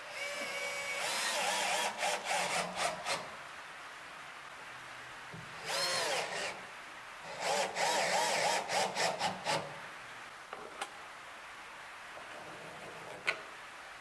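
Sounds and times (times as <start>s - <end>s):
cordless drill whining: 0.0s - 3.2s, 5.6s - 6.6s, 7.3s - 9.7s.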